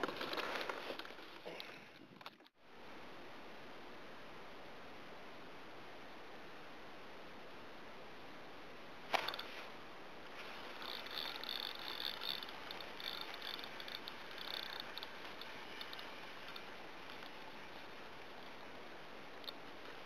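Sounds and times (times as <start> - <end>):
fishing reel ratchet clicking: 9.2 - 9.5, 10.4 - 20.0.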